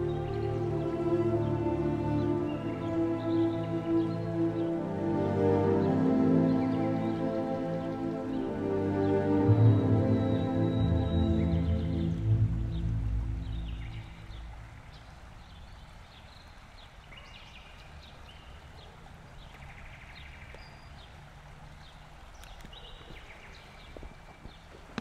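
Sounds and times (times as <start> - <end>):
small birds chirping: 0.0 - 5.0, 5.6 - 25.0
soft background music: 0.0 - 14.8
low steady rumble: 9.4 - 15.5
faint clicks: 22.3 - 23.3, 23.9 - 25.0.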